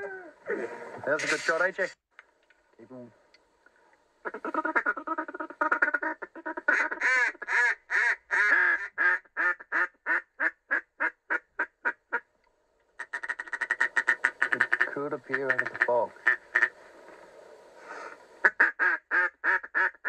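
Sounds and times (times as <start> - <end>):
duck call chatter and quacks: 4.2 - 12.3, 13.0 - 16.8, 17.9 - 20.0.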